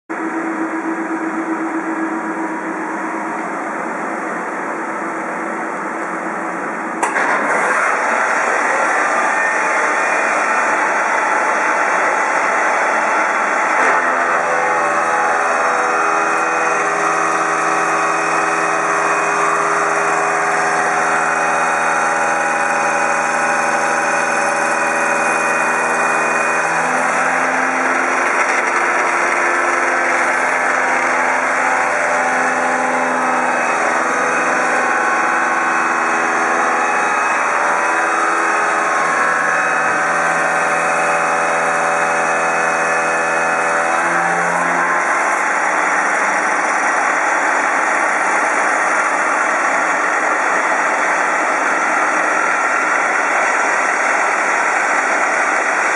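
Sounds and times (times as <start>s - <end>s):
milling machine cutting metal: 7.0s - 55.9s.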